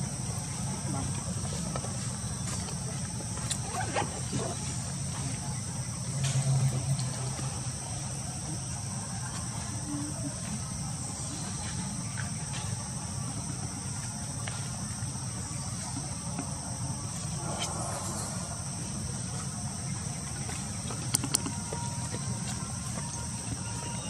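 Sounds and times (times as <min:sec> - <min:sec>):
insects droning: 0:00.0 - 0:24.0
low rumble: 0:17.3 - 0:19.7.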